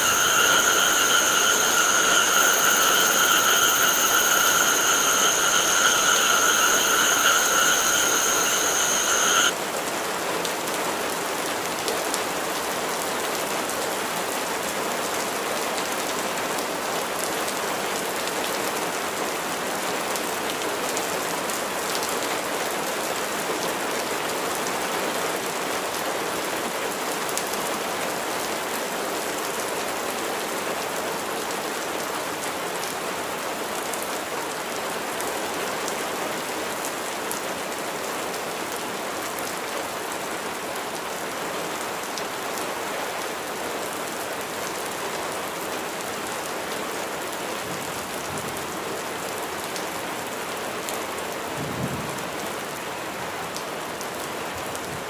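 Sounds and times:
rain falling on leaves: 25.7 - 55.0.

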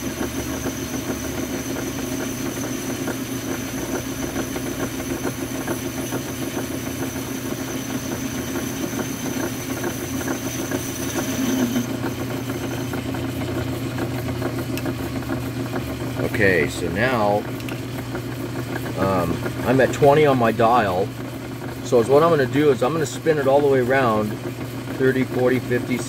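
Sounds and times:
metal lathe motor hum: 0.0 - 26.0
thin high whine: 8.7 - 12.9.

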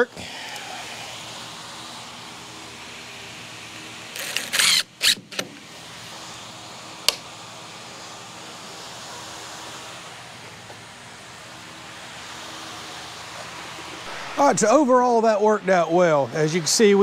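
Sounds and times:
cordless drill driving a screw: 4.2 - 5.2.

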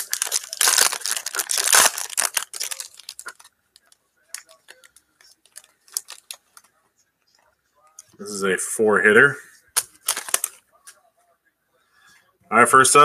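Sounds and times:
foil wrapper tearing and crinkling: 0.0 - 3.5, 4.4 - 6.4, 9.8 - 10.6.

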